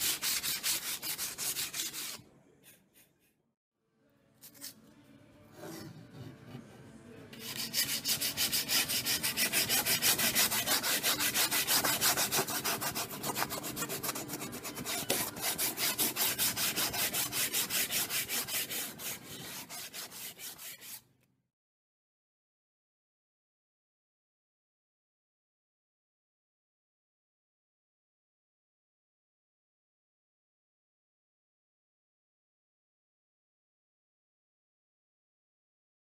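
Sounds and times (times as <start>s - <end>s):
sanding strokes on wood: 7.4s - 21.0s.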